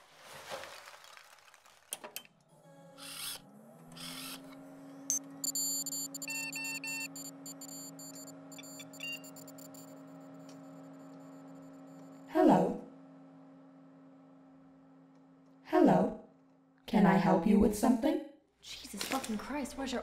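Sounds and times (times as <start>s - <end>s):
low electronic hum rising: 2.4s - 16.8s
electronic clicks beeps and chirps: 5.1s - 10.6s.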